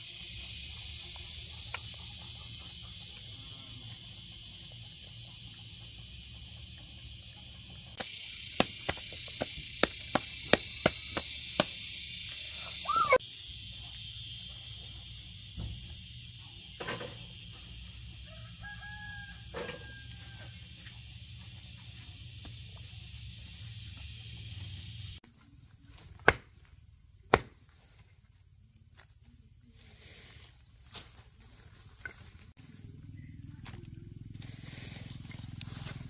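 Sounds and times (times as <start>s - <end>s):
rooster crowing: 18.2s - 20.8s.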